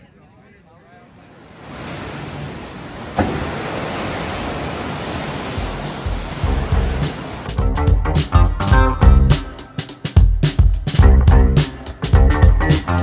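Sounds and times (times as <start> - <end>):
ocean waves breaking: 0.9 - 7.6
bass thumps of music: 5.6 - 9.5, 10.2 - 13.0.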